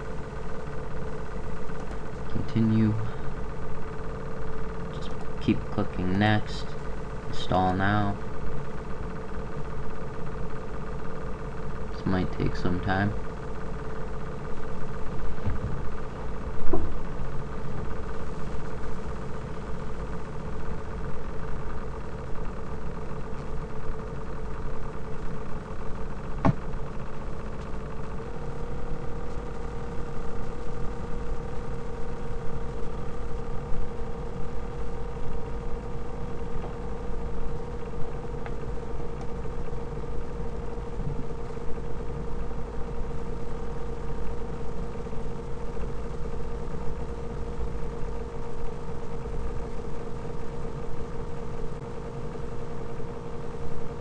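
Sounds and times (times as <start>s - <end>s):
laptop cooling fan humming: 0.0s - 54.0s
click: 1.8s - 2.0s.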